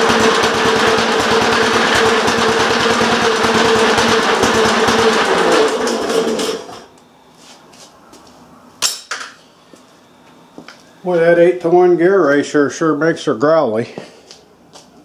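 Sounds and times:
small engine running: 0.0s - 6.9s.

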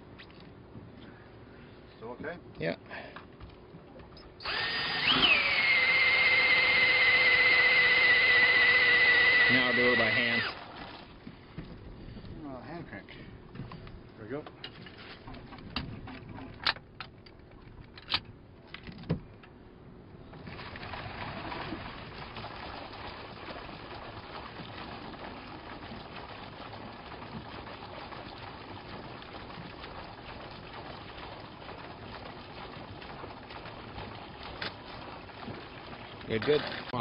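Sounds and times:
water rushing through hose: 4.4s - 11.1s.

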